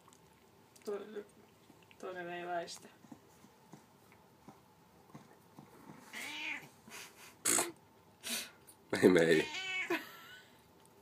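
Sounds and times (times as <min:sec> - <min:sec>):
cat meowing: 0:06.1 - 0:06.7, 0:09.3 - 0:09.9.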